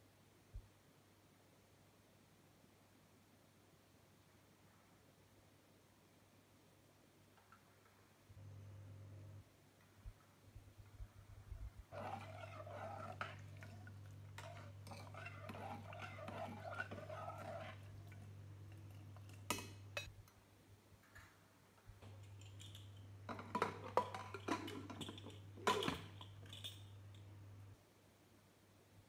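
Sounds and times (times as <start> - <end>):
steady low hum: 8.3 - 20.1
ladle stirring in a pot: 11.0 - 20.1, 22.6 - 26.7.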